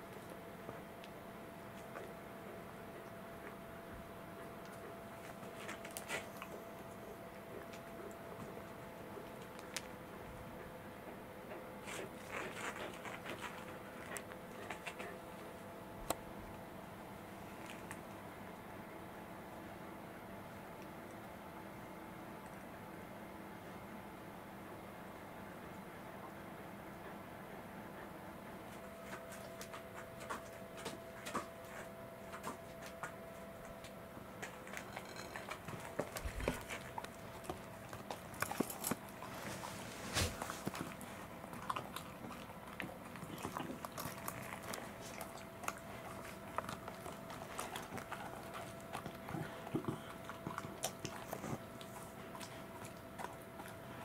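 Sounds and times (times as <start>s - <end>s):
dog chewing and licking: 4.2s - 15.6s, 28.6s - 54.0s.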